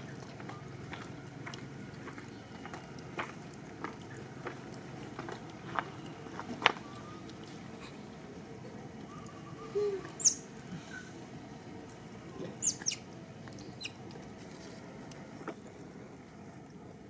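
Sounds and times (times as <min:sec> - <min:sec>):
baby monkey squeaking: 0:10.2 - 0:10.4, 0:12.6 - 0:13.0.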